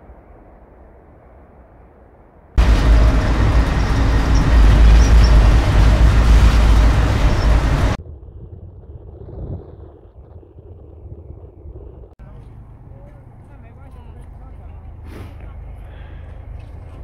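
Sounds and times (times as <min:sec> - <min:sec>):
faint low outdoor rumble: 0:00.0 - 0:17.0
train rumble from on board: 0:02.6 - 0:08.0.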